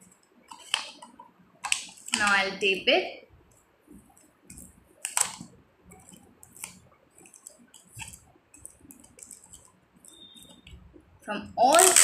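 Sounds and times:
tape and plastic bottle crinkling: 0:00.5 - 0:02.4, 0:04.1 - 0:10.8, 0:11.6 - 0:12.0.

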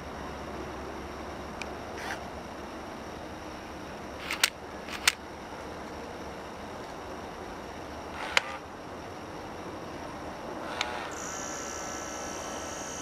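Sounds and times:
low background hiss: 0:00.0 - 0:13.0
sharp clicks: 0:04.2 - 0:05.2.

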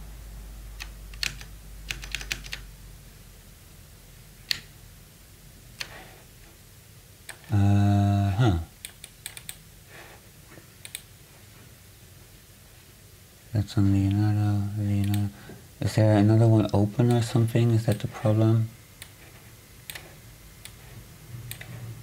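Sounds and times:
steady low hum: 0:00.0 - 0:22.0
computer keyboard clicks: 0:00.8 - 0:02.6, 0:04.5 - 0:04.7, 0:08.8 - 0:09.6, 0:10.8 - 0:11.1, 0:21.5 - 0:21.7.

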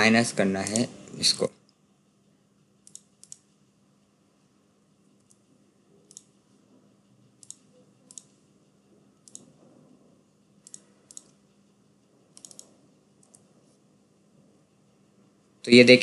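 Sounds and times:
faint steady hum: 0:00.0 - 0:16.0
mouse and keyboard clicks: 0:02.8 - 0:03.5, 0:05.2 - 0:06.4, 0:07.4 - 0:08.4, 0:09.2 - 0:09.6, 0:10.6 - 0:11.4, 0:12.3 - 0:13.5.

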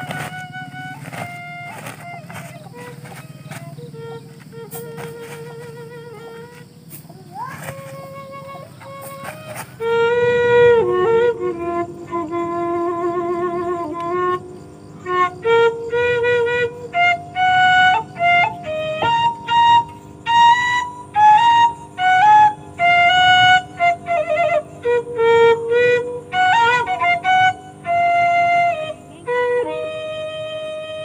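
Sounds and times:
flute melody: 0:00.0 - 0:31.0.

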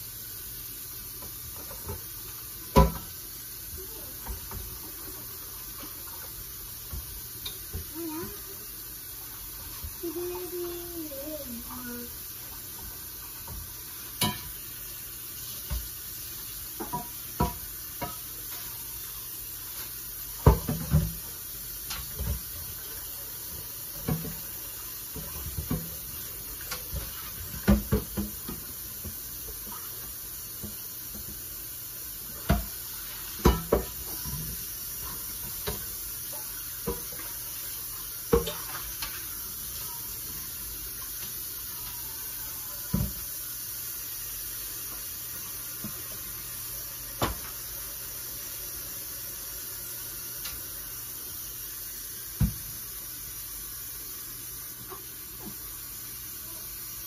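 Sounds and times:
pots and dishes clanking: 0:13.4 - 0:14.6, 0:16.8 - 0:18.8, 0:20.4 - 0:21.2, 0:23.5 - 0:29.9, 0:32.4 - 0:40.5.

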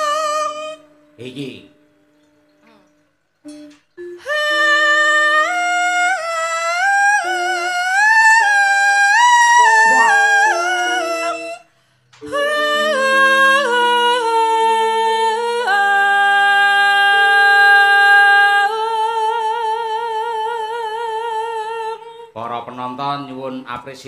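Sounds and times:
low sustained accompaniment: 0:00.0 - 0:20.9
woman singing into microphone: 0:04.0 - 0:22.4.

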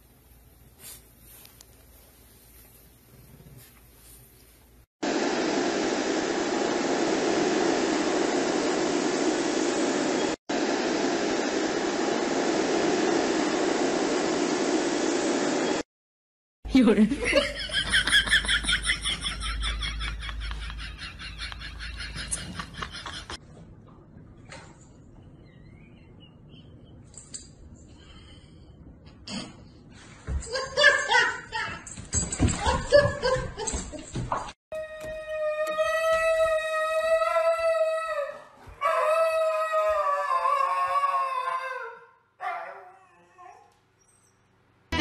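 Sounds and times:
husky howling: 0:34.8 - 0:43.7.

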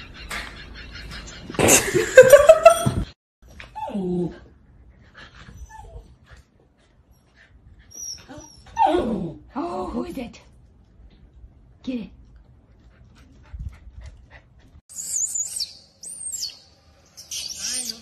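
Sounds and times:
puppy whimpering: 0:07.9 - 0:09.3.

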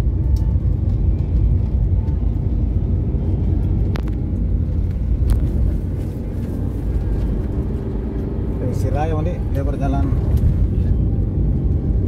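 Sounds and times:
car cabin road rumble: 0:00.0 - 0:12.0.

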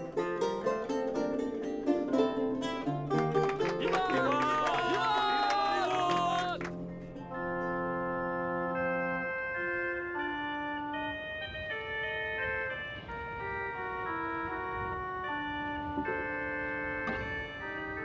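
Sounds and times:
slow melody over sustained chords: 0:06.6 - 0:18.0.

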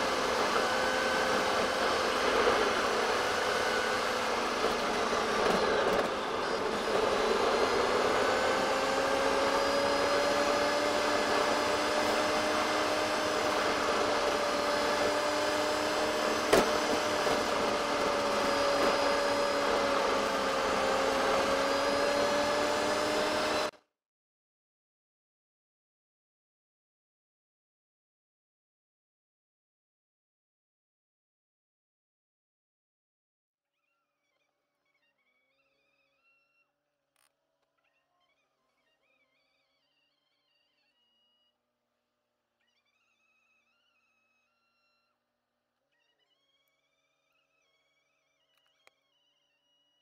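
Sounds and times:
sped-up drivetrain whine: 0:00.0 - 0:23.7.

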